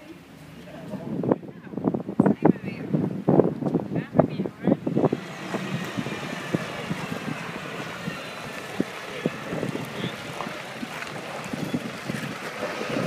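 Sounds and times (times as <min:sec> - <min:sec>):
tractor engine running: 0:04.6 - 0:13.0.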